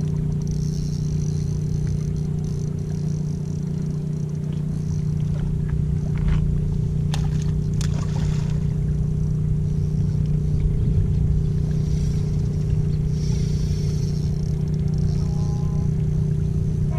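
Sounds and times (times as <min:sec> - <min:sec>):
boat engine humming: 0:00.0 - 0:16.9.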